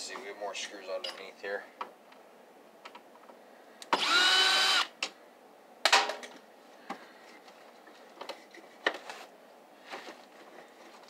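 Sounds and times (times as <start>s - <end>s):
cordless drill whining: 3.8s - 5.0s.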